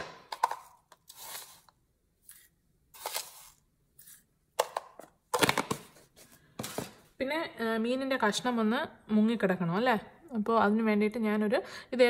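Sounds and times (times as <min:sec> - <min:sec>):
spoon scraping salt: 0:01.0 - 0:04.3.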